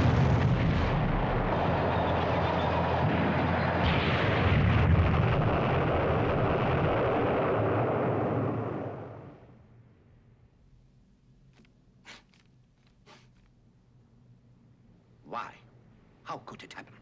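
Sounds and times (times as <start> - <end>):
sharp explosion blast: 0.0 - 2.2, 3.0 - 9.3
rumble of explosions: 0.0 - 10.3.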